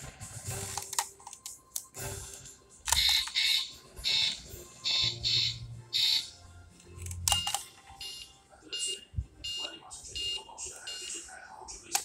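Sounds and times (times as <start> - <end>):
toy button clicks: 2.9 - 3.5, 7.0 - 7.7.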